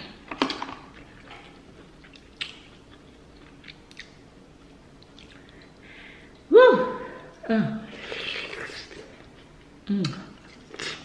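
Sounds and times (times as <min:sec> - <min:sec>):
person chewing food: 0:00.9 - 0:06.4.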